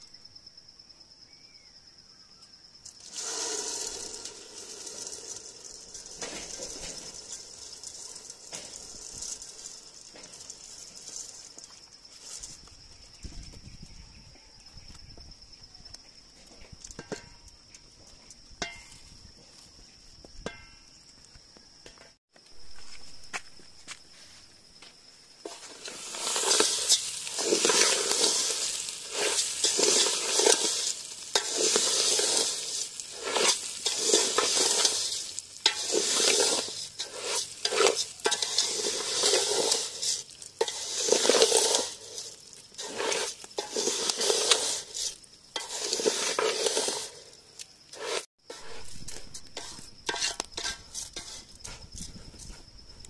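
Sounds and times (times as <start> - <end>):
stirring and scraping in a pan: 2.8 - 13.9, 16.2 - 20.9, 25.4 - 53.0
food sizzling in a pan: 2.8 - 14.0, 25.4 - 52.7.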